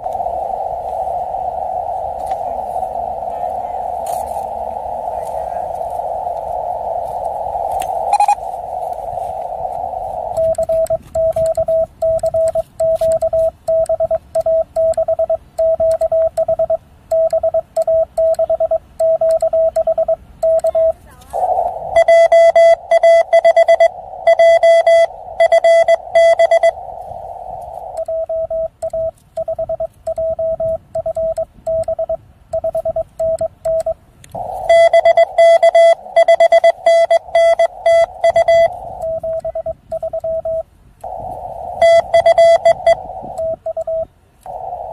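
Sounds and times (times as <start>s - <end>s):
radio hiss: 0.0s - 16.8s, 17.4s - 44.9s
morse code tone: 8.0s - 8.5s, 10.2s - 26.8s, 27.8s - 44.1s.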